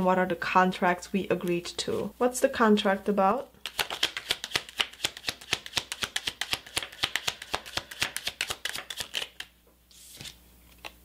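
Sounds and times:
cards being shuffled: 3.6s - 11.0s.

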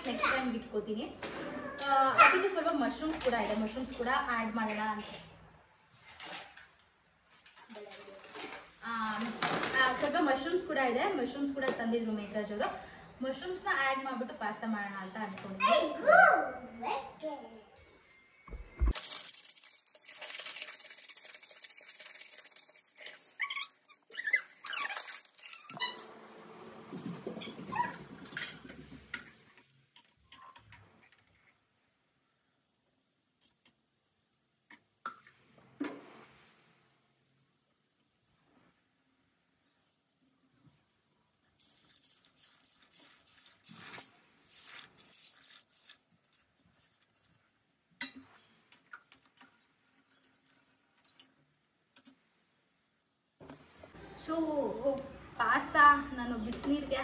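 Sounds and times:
dry pasta rattling on steel plate: 18.9s - 23.4s, 41.6s - 47.6s
pasta rustling and splashing into pot: 18.9s - 23.8s
short high squeaks: 23.2s - 28.9s.

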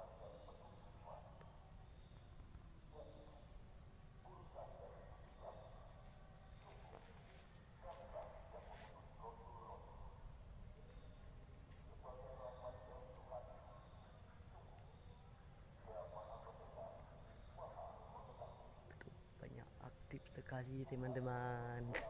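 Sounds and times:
faint calling voices: 4.2s - 10.2s, 15.8s - 22.0s.

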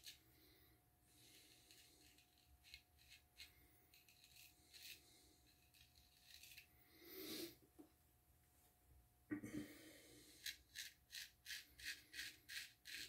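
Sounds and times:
razor scraping beard stubble: 1.2s - 6.7s, 10.4s - 13.0s.

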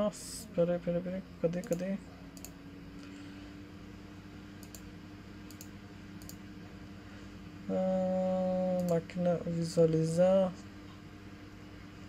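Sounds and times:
faint electrical hum: 0.0s - 12.0s
computer mouse clicks: 1.6s - 2.6s, 4.6s - 4.9s, 5.5s - 6.4s.

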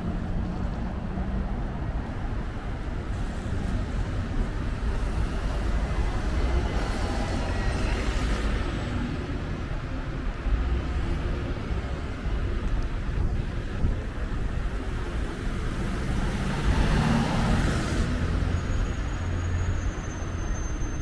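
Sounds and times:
low traffic rumble: 0.0s - 21.0s
wind rumble on microphone: 12.4s - 16.0s
bus tyres hissing on wet road: 16.4s - 20.6s.

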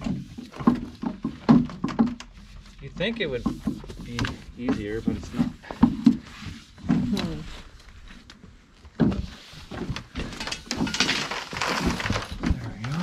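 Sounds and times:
handling knocks and scuffing: 0.0s - 13.0s
person making wordless sounds: 6.9s - 7.6s, 12.4s - 13.0s.

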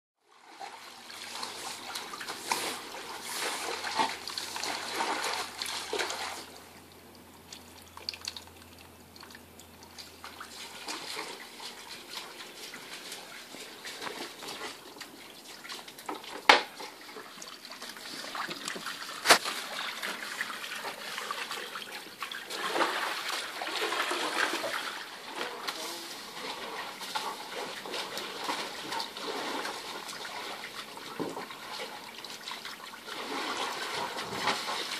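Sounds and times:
shallow water splashing: 0.3s - 34.9s.

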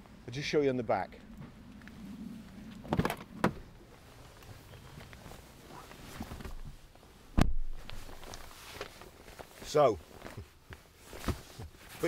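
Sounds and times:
person climbing onto seat: 2.6s - 11.9s
heavy thump: 7.4s - 7.9s.

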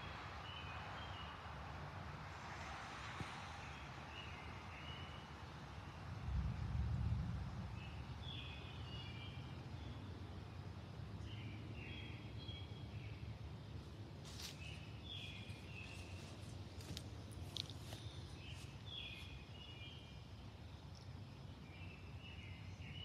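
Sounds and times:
songbirds singing: 0.0s - 1.5s, 3.6s - 6.1s, 7.6s - 23.0s
steady low rumble: 6.1s - 11.8s.

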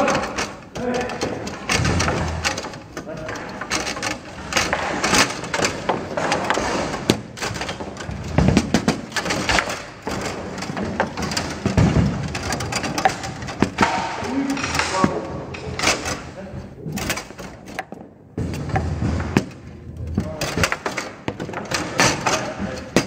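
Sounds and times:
ball clacking off table figures: 0.0s - 23.0s
heavy thuds: 0.0s - 23.0s
rods rattling and knocking: 0.0s - 23.0s.

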